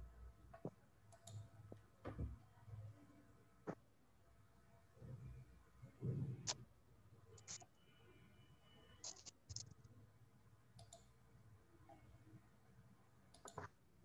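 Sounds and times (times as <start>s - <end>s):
faint clicks: 10.8s - 11.1s, 13.3s - 13.7s.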